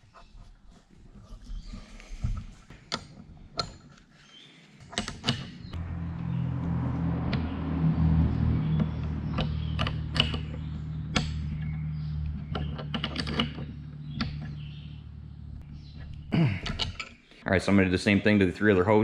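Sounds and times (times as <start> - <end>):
wrenches clinking on metal: 9.3 - 14.7, 16.0 - 17.3.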